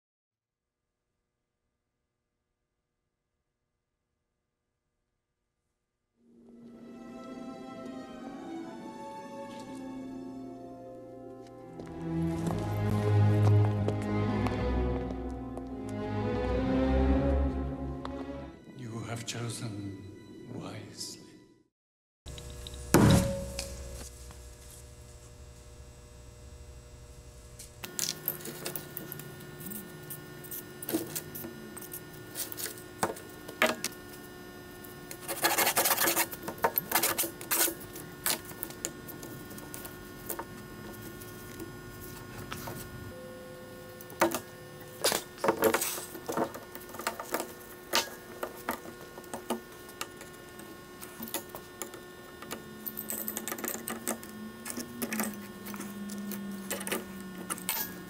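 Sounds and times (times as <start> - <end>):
faint steady hum: 22.3 - 58.0.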